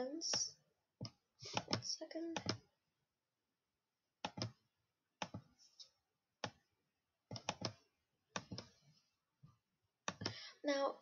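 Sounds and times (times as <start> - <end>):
computer mouse clicking: 0.3 - 2.6, 4.2 - 4.6, 5.2 - 5.5, 6.4 - 6.6, 7.3 - 8.8, 10.1 - 10.4.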